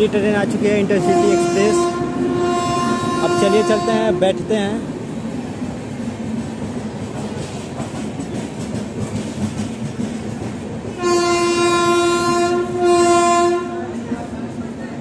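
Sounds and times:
train horn blasts: 1.0 - 4.4, 11.0 - 14.0.

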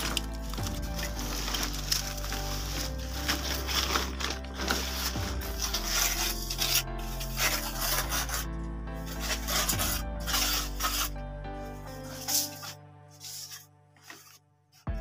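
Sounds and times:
trowel scraping wet cement: 0.0 - 11.2, 11.8 - 15.0
background music with bass: 0.0 - 13.6.

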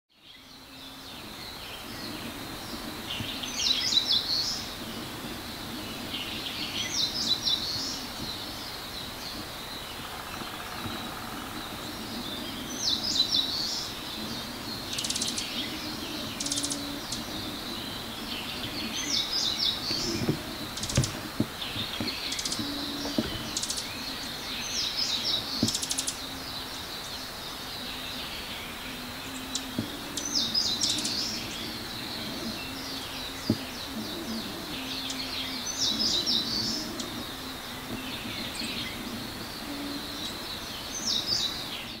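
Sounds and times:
warbler singing: 0.1 - 42.0.

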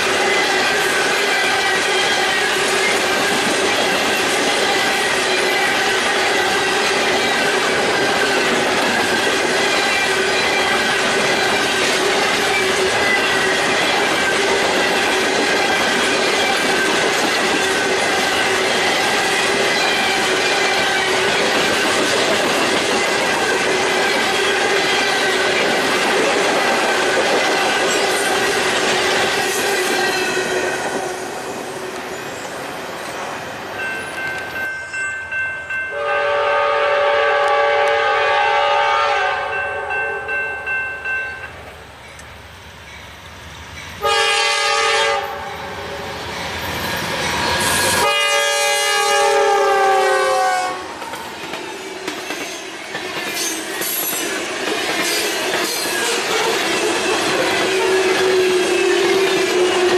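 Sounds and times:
train wheels clattering: 0.0 - 33.2, 50.9 - 59.9
locomotive air horn: 35.9 - 39.9, 44.0 - 45.5, 48.0 - 50.9.

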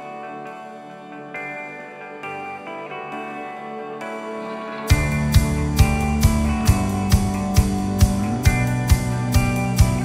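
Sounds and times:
guitar: 0.0 - 10.0
steady drum beat: 4.9 - 10.0.

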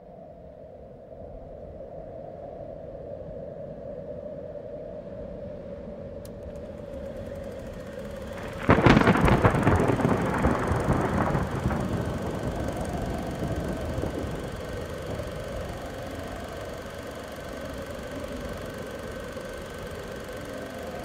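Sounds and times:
steady low hum: 5.3 - 21.0
thunderclap rumbling: 6.9 - 17.8.

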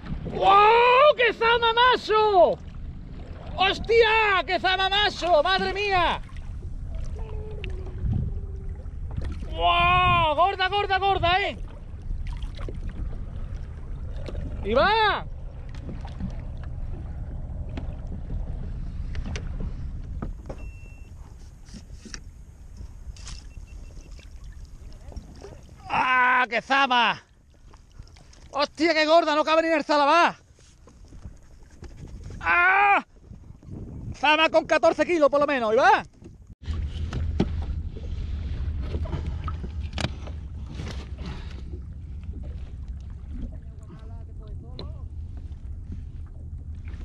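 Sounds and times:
wind on microphone: 0.0 - 26.0, 30.7 - 35.3, 36.0 - 47.0
water splashing: 0.0 - 29.4, 36.6 - 47.0
short beep: 20.5 - 21.3, 23.3 - 24.2
microphone handling clicks: 38.8 - 41.2.

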